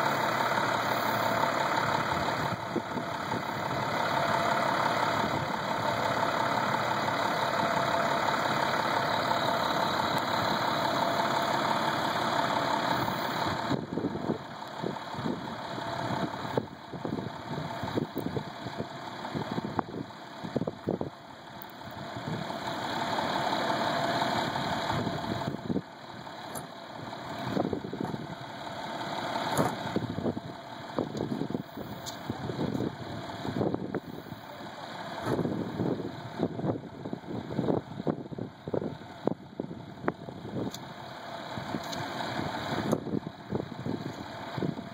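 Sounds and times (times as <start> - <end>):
truck engine idling: 0.0 - 44.9.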